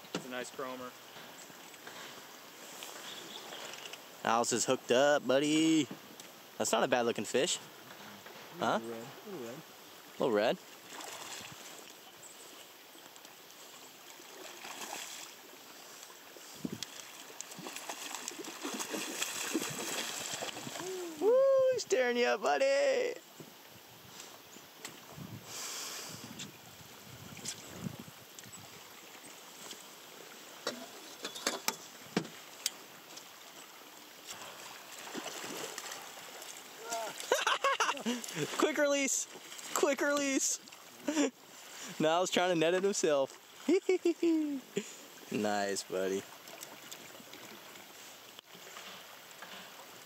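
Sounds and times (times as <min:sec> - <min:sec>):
river current lapping around raft: 0:00.0 - 0:50.0
fish splashing and thrashing: 0:10.8 - 0:11.7, 0:14.1 - 0:15.5, 0:16.8 - 0:21.2, 0:34.3 - 0:38.6
fish splashing at surface: 0:17.4 - 0:21.0.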